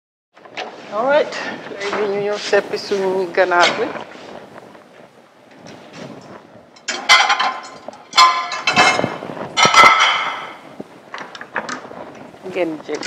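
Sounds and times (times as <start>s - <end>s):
metal cookware clanging and scraping: 1.3s - 4.0s, 6.7s - 10.7s.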